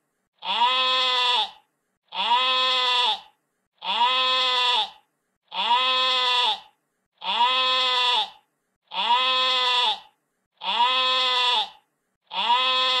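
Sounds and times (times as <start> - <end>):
sheep bleating: 0.4 - 13.0.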